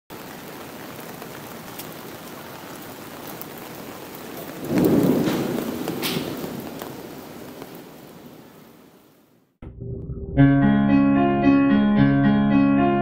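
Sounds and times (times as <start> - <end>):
steady rain falling: 0.1 - 9.6
thunder rumble: 4.2 - 8.7.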